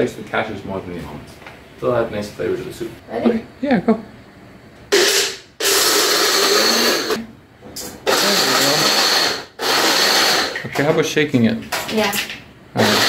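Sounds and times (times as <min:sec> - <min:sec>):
electric nut grinder pulsing: 0:04.9 - 0:07.2, 0:08.0 - 0:10.7, 0:12.8 - 0:13.0.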